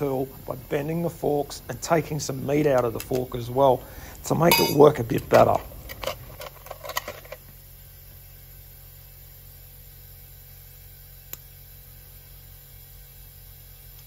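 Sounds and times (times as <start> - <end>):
low steady hum: 0.0 - 7.5.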